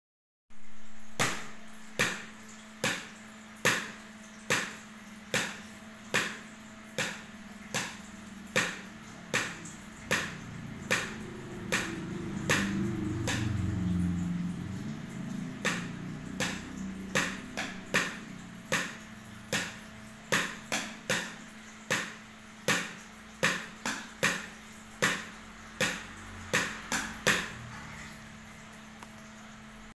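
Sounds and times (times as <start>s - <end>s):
sticks tapping plastic lids: 8.6s - 13.6s.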